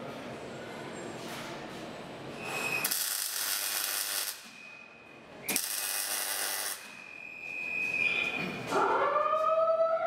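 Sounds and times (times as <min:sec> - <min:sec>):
welding arc crackling: 0:02.8 - 0:04.6, 0:05.5 - 0:07.0.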